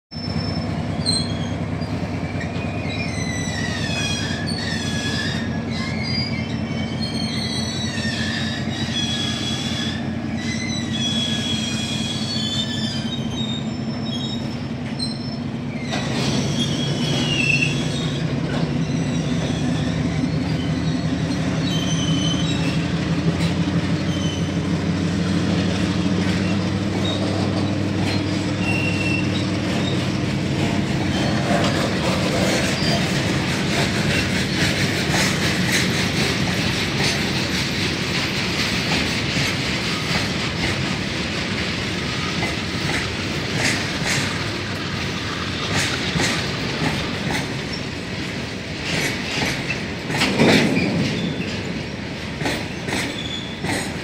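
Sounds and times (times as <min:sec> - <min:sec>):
train wheels rumbling on rails: 0:00.1 - 0:54.0
high-pitched wheel squeals: 0:00.2 - 0:22.9, 0:24.0 - 0:24.6, 0:26.2 - 0:30.2, 0:31.0 - 0:33.2, 0:53.1 - 0:53.6.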